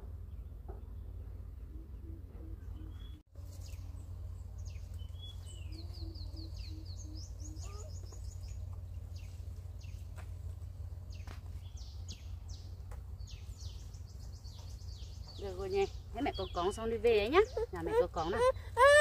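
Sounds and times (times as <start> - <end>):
steady low rumble: 0.0 - 18.8
birds chirping: 0.2 - 19.0
low bird call: 1.4 - 3.9, 4.6 - 10.0.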